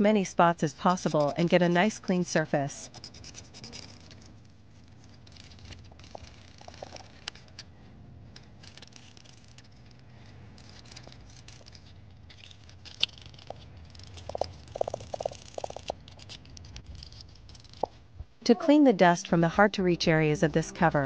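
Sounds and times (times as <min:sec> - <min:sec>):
sandpaper scratching plastic: 0:02.8 - 0:07.7, 0:08.4 - 0:17.9.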